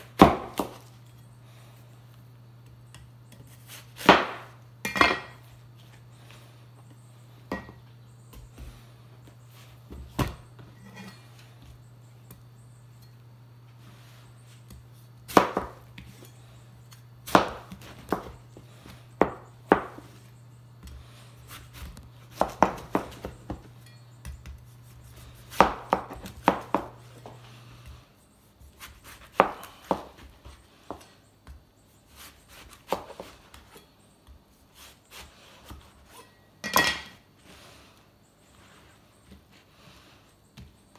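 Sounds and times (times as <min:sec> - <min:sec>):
low steady hum: 0:00.0 - 0:40.9
knife chopping watermelon on board: 0:21.5 - 0:23.6, 0:24.2 - 0:27.0, 0:28.6 - 0:30.2.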